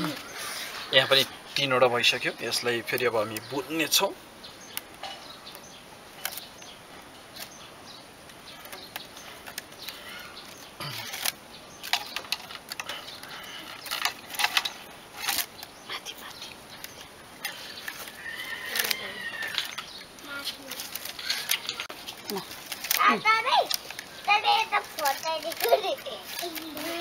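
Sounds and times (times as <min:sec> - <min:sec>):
plastic strip rustling and scraping: 0:08.2 - 0:15.7, 0:16.8 - 0:27.0.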